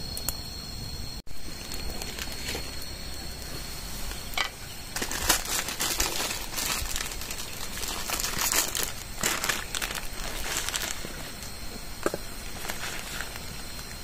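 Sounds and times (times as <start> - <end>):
plastic packet crinkling: 5.0 - 11.2, 12.5 - 13.5.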